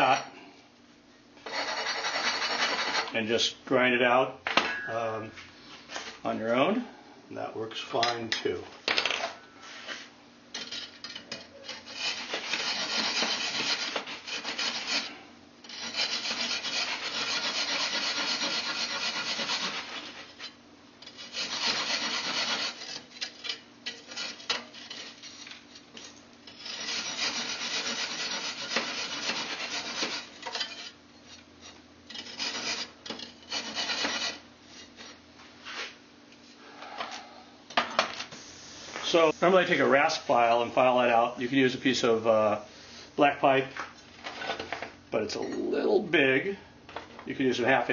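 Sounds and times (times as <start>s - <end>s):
hacksaw rasping through brick: 1.5s - 3.1s, 11.6s - 15.1s, 15.7s - 25.4s, 26.0s - 31.0s, 32.1s - 34.4s.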